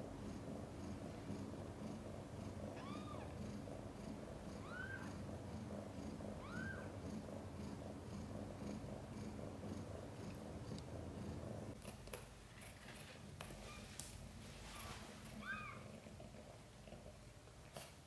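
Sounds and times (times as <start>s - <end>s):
cat purring: 0.0s - 11.9s, 12.6s - 18.0s
kittens squeaking: 4.6s - 5.1s, 6.4s - 6.9s, 15.4s - 15.8s.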